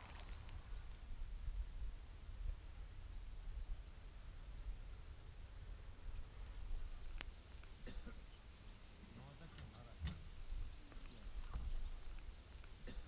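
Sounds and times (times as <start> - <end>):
wind rumble on microphone: 0.0 - 7.4, 10.0 - 12.5
faint bird chirps: 3.0 - 9.1.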